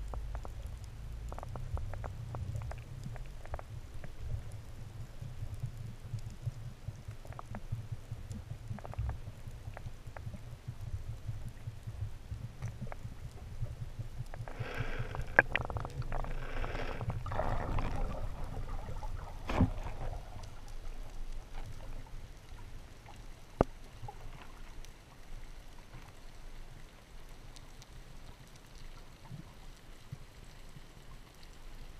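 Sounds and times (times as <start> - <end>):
faint crackles: 0.0 - 31.9
underwater rumble of water: 0.0 - 31.9
water rushing: 14.4 - 21.7.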